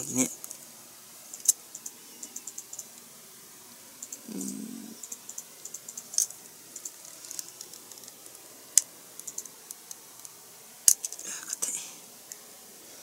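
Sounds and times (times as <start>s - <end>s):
plastic parts clicking and tapping: 10.9s - 11.6s.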